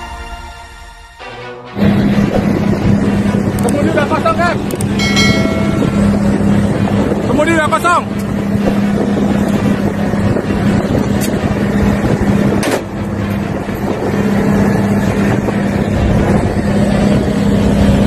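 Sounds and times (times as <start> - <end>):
boat engine droning: 0.0 - 18.0.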